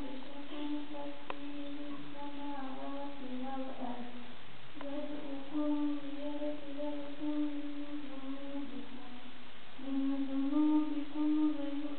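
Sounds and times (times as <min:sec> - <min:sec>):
person chanting recitation: 0:00.0 - 0:11.9.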